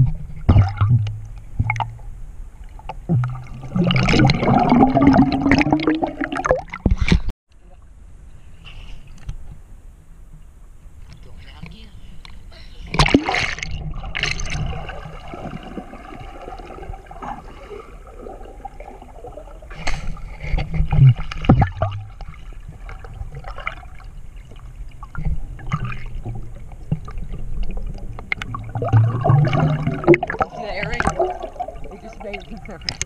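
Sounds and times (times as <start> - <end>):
muffled underwater bubbles: 2.9 - 7.2, 12.9 - 33.0
rushing bubbling water surges: 3.4 - 6.8, 13.0 - 20.2, 21.2 - 33.0
splash into water: 13.0 - 16.9.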